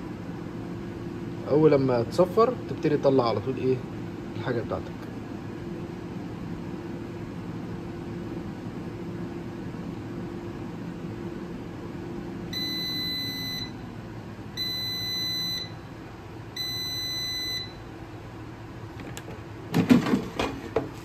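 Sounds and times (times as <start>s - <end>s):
high beeps: 12.6s - 13.7s, 14.6s - 15.8s, 16.6s - 17.8s.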